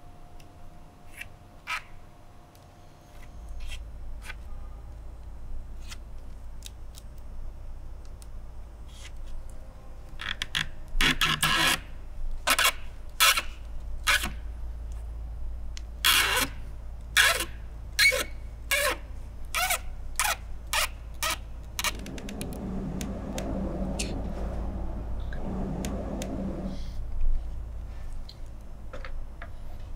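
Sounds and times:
low hum: 21.3 - 28.6.

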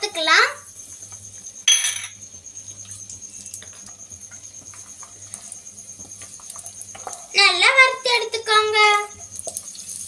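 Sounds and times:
nuts sizzling in fat: 2.5 - 10.0.

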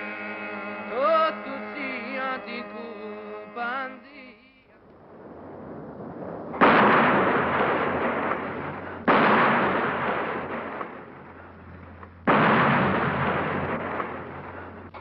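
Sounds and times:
artillery shell blasts: 5.0 - 15.0.

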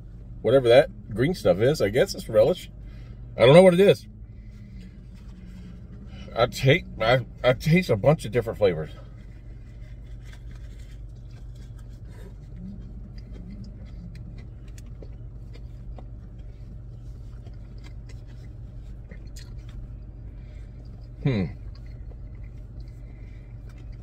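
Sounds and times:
car engine idling hum: 0.0 - 24.0
chewing and mouth clicks: 9.0 - 24.0.

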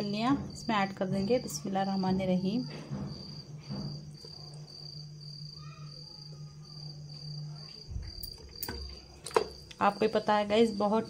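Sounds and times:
cricket chirping: 0.0 - 11.0
low steady hum: 3.6 - 11.0.

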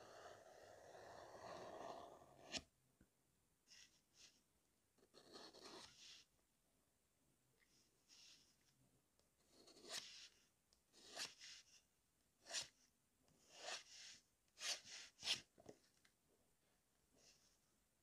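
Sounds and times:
pen nib scratching paper: 0.0 - 2.4, 5.1 - 6.0.

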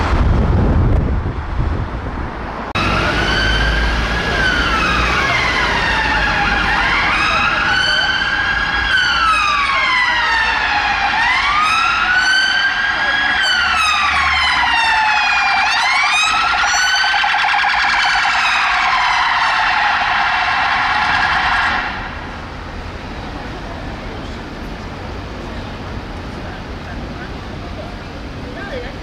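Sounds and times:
police sirens wailing: 2.7 - 24.2.

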